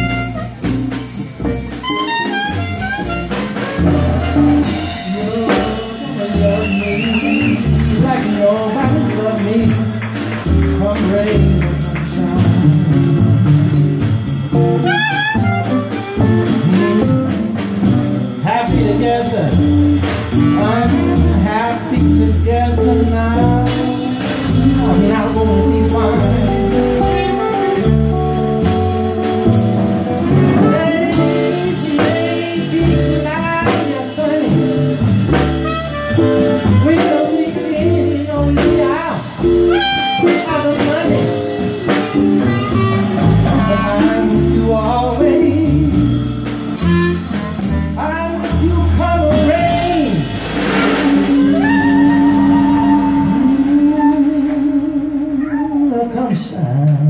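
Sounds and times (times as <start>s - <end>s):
clarinet melody: 0.0s - 9.1s, 12.5s - 18.2s, 22.5s - 33.9s, 34.5s - 48.8s, 50.7s - 56.0s
electric guitar: 0.0s - 56.1s
drum kit: 0.0s - 57.0s
upright bass: 0.0s - 57.0s
person singing: 4.6s - 13.2s, 18.4s - 19.7s, 20.4s - 28.1s, 30.2s - 35.1s, 36.1s - 46.2s, 48.0s - 50.4s, 51.1s - 57.0s.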